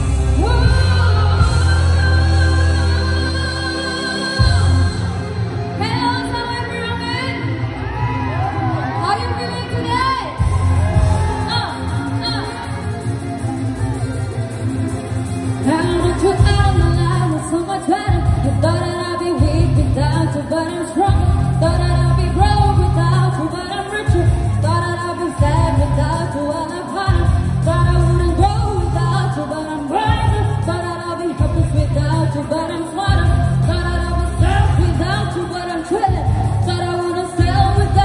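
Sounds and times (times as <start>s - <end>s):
heavy pulsing bass: 0.0s - 6.0s, 10.2s - 26.5s, 27.1s - 38.0s
woman singing into microphone: 0.0s - 7.4s, 15.6s - 38.0s
amplified pop backing track: 0.0s - 38.0s.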